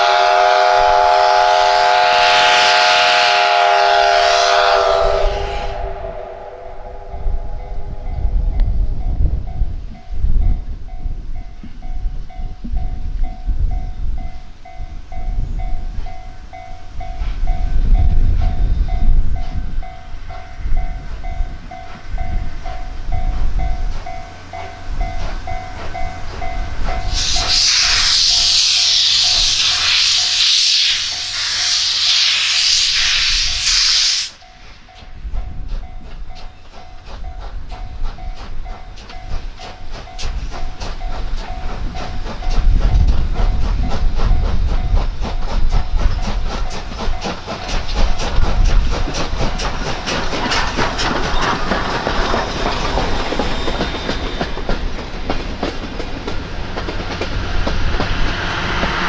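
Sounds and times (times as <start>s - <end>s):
loud hiss of steam: 0.0s - 7.8s, 26.8s - 34.9s, 56.0s - 59.0s
steam locomotive rumble: 0.0s - 59.0s
train wheels clicking over rail joints: 15.2s - 59.0s.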